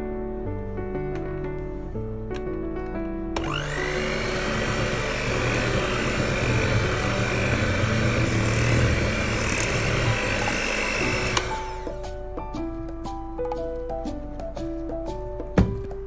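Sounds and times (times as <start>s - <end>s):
electric hand mixer whining: 3.4s - 12.1s.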